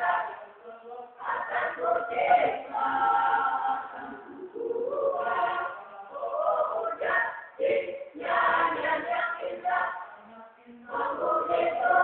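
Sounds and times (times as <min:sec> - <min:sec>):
choir singing: 0:00.0 - 0:12.0.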